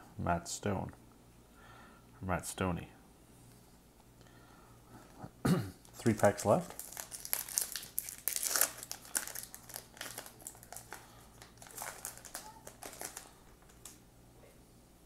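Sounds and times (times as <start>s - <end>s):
plastic wrapper crinkling: 5.8s - 14.0s.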